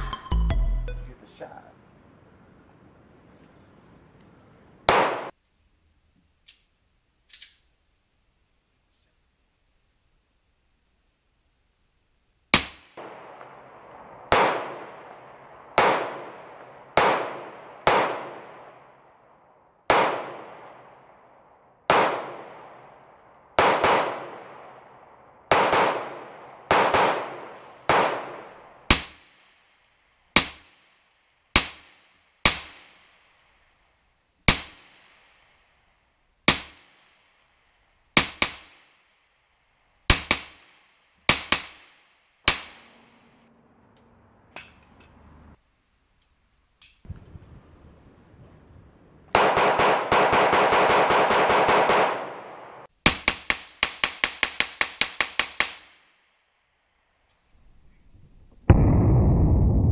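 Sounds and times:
pistol shots with echo: 4.9 - 5.3, 12.6 - 18.8, 19.9 - 21.2, 21.9 - 29.3, 49.3 - 55.9.

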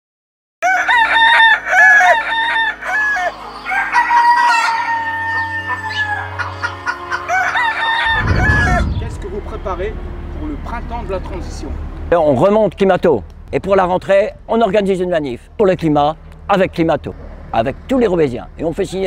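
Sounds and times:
rooster crowing: 0.6 - 9.0
chickens clucking: 2.8 - 9.0
low rumble: 8.0 - 11.1, 13.2 - 17.6.

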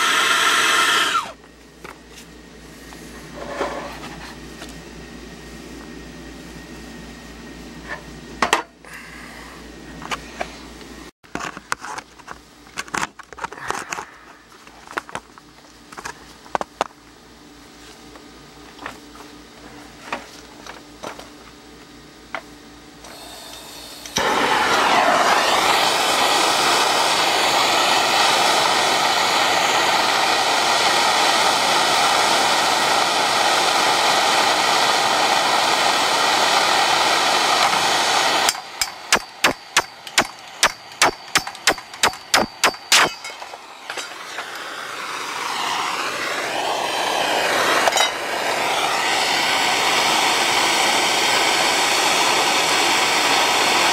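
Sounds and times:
soldering torch hissing: 0.0 - 1.4, 23.1 - 53.9
sharp clicks: 39.1 - 43.1.

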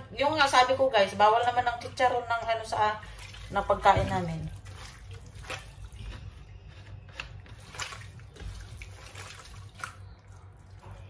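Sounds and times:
water splashing and sloshing: 2.4 - 6.4, 7.2 - 11.0.

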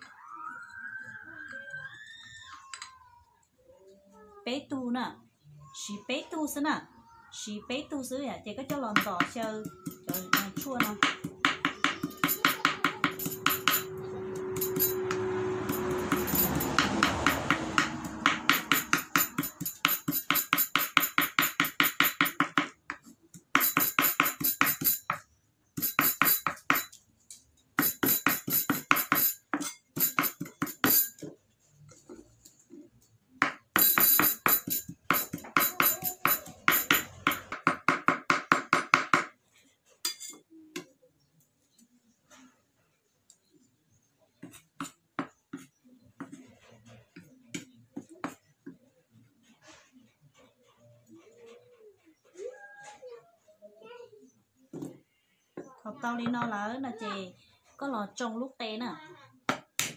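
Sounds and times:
knife chopping herbs on board: 8.9 - 13.9, 14.6 - 25.2, 33.4 - 39.3, 44.4 - 46.5.

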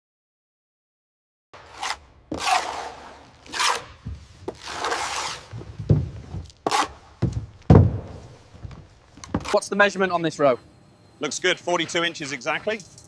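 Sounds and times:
trowel scraping adhesive: 1.6 - 7.1
dull thumps: 3.6 - 9.6.

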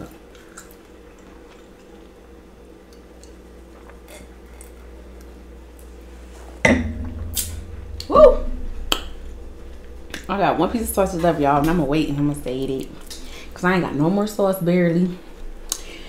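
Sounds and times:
person humming: 8.0 - 8.6.

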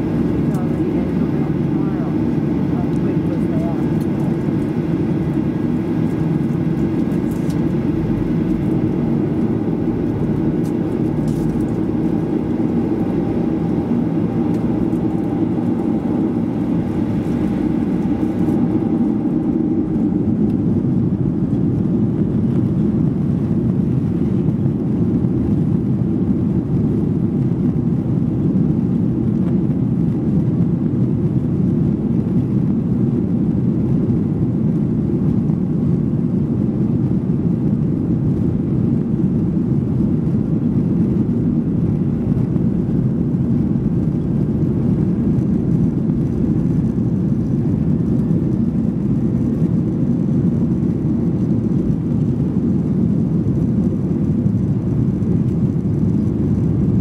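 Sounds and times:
jet engine and runway rumble: 0.0 - 57.0.

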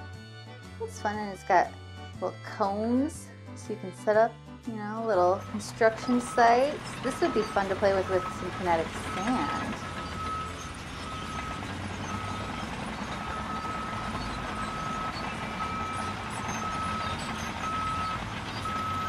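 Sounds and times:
vehicle rumble: 5.0 - 19.0
reversing alarm beeping: 5.3 - 19.0.

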